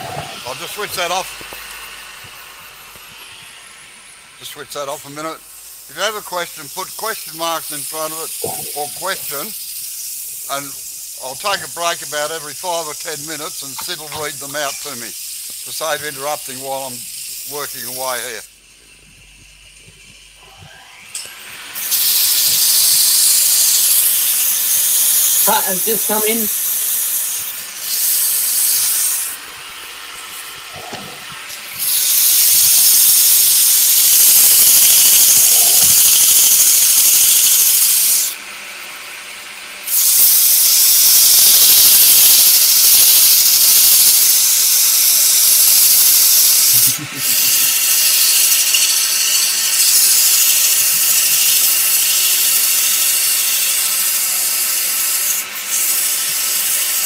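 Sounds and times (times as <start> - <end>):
sandpaper on spinning wood: 30.9 - 38.4, 39.9 - 57.0.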